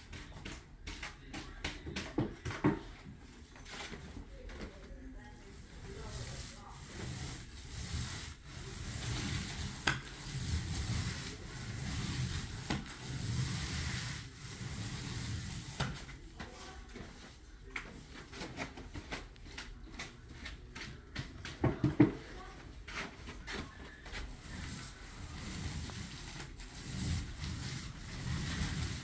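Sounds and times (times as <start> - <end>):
paint roller rubbing on ceiling: 0.0 - 3.0, 3.6 - 29.0
roller knocking on paint bucket: 6.2 - 16.1, 21.2 - 22.2, 24.4 - 29.0.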